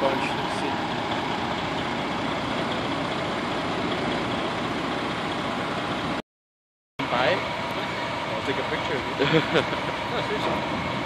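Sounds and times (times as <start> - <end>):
diesel engine idling: 0.0 - 6.2, 7.0 - 11.0.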